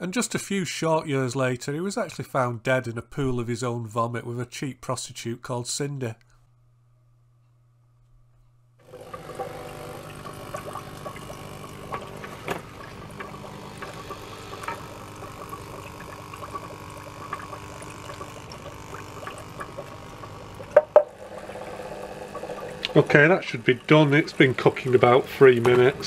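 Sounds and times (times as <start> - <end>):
air pump humming: 8.8 - 26.0
bubbles crackling: 8.9 - 26.0.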